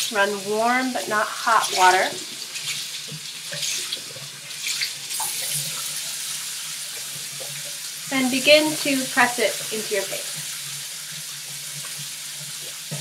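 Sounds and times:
water splashing on washcloth: 0:00.0 - 0:06.2.

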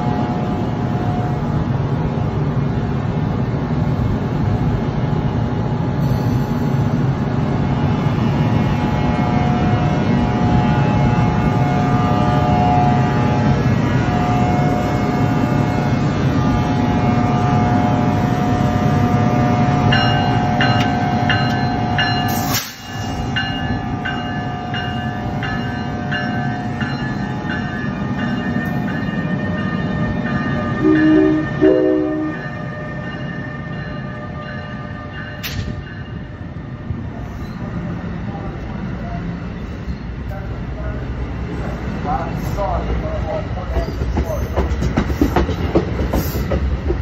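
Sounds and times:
electric locomotive whine: 0:00.0 - 0:47.0
train wheels rumbling: 0:00.0 - 0:47.0
bell ringing: 0:23.4 - 0:36.2
train horn blasts: 0:30.7 - 0:33.0.

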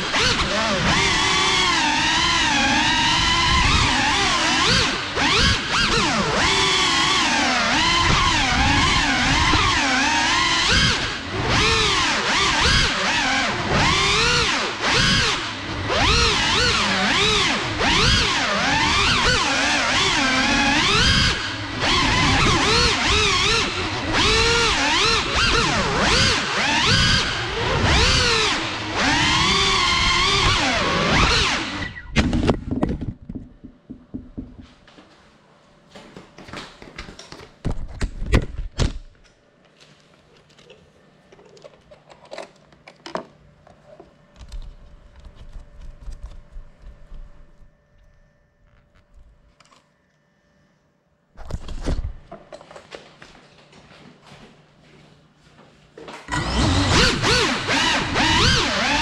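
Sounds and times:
drone motors whining: 0:00.0 - 0:32.9, 0:56.3 - 0:59.0.

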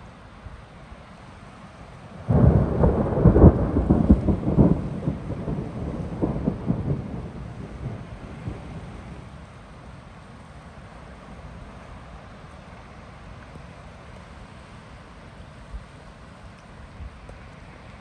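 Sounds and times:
thunder clap and rumble: 0:02.2 - 0:09.4.

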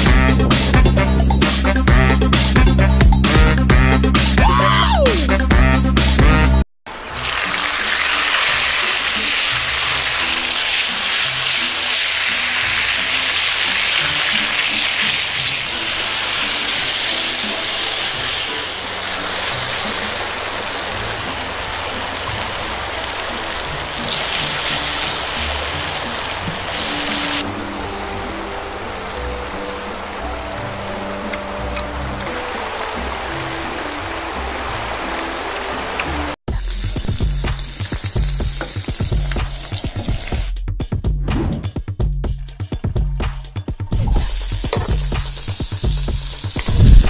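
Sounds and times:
broth boiling hard in pot: 0:06.9 - 0:40.4, 0:44.0 - 0:47.0.

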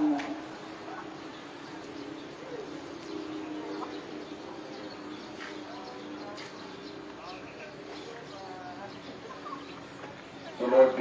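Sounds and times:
birds calling faintly: 0:00.0 - 0:11.0.

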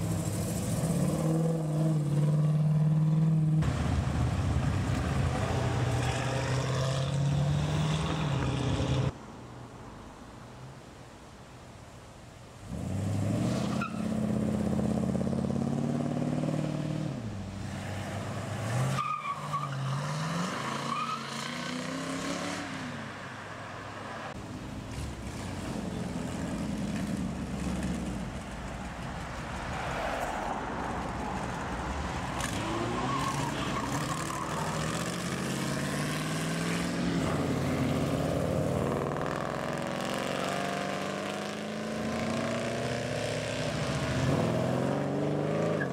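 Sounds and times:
car engines revving past: 0:00.0 - 0:09.2, 0:12.7 - 0:45.9.

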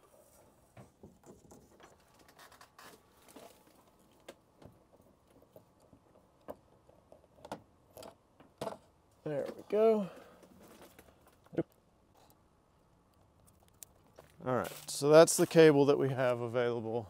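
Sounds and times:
cable handling clicks and rustles: 0:13.1 - 0:15.7.

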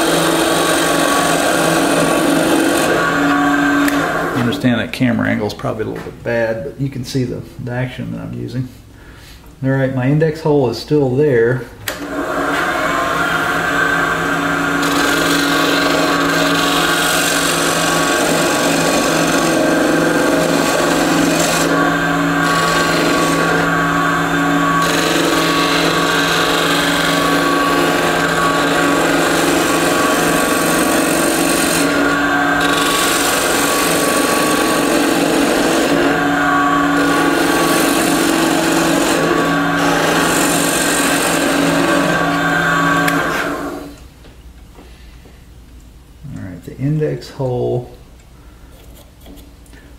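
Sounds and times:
turning tool scraping wood: 0:00.0 - 0:04.6, 0:12.5 - 0:43.9
wood lathe motor hum: 0:00.0 - 0:04.6, 0:11.9 - 0:44.0.

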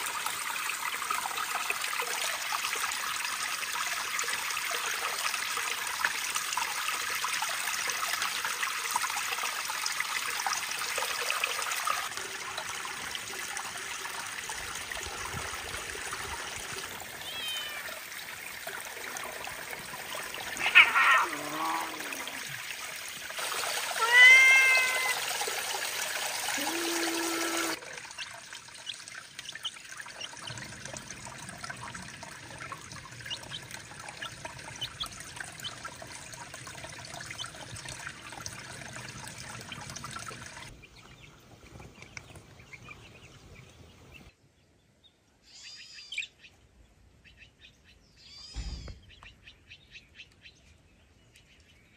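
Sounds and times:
water trickling over rocks: 0:00.0 - 0:44.2
cat meowing loudly: 0:17.2 - 0:18.0, 0:20.6 - 0:22.4, 0:23.9 - 0:25.2.

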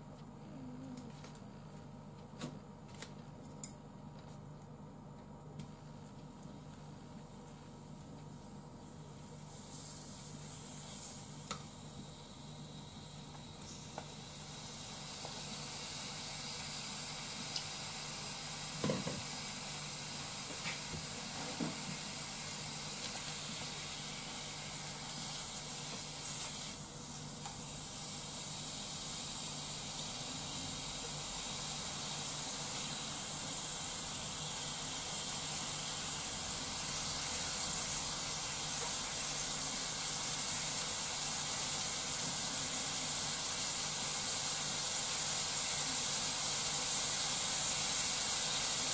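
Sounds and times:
meat sizzling in a frying pan: 0:13.8 - 0:48.9.

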